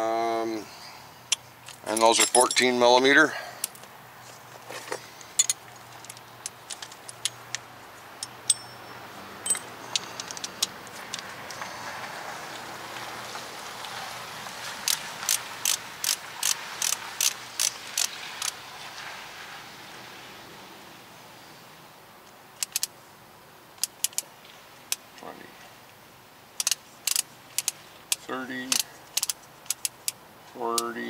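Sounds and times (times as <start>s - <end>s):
torque wrench ratchet clicking: 14.9s - 18.5s, 26.6s - 27.7s, 28.7s - 30.2s.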